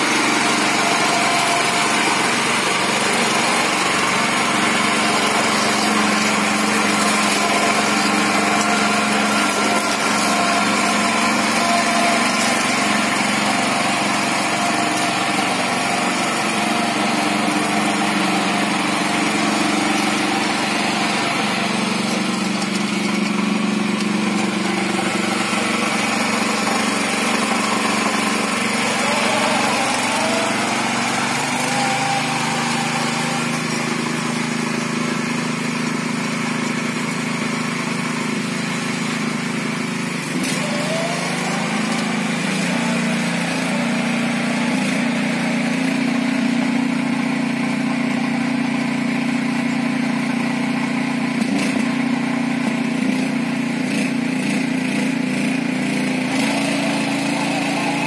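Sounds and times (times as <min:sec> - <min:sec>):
tractor engine running under load: 0:00.0 - 0:58.0.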